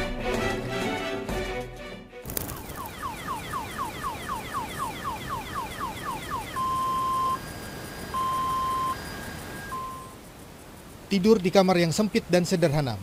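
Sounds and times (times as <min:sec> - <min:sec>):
electronic alarm chirps and beeps: 0:02.6 - 0:10.2.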